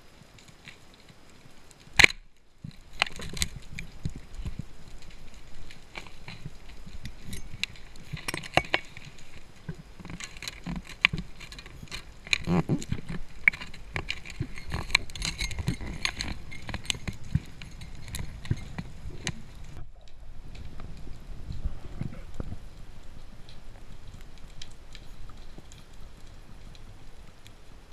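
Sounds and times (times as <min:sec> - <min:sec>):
underwater crackling clicks: 0:00.4 - 0:22.6.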